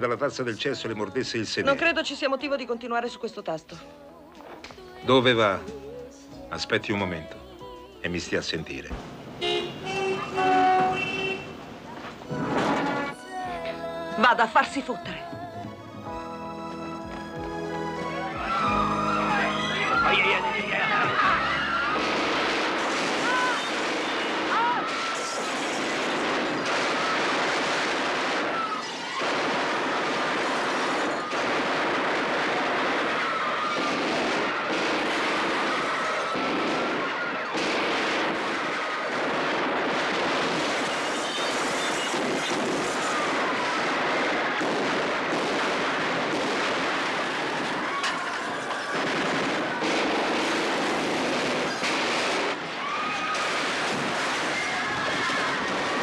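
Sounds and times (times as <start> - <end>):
people screaming: 17.8 - 51.8, 52.5 - 56.0
automatic gunfire: 22.0 - 52.6.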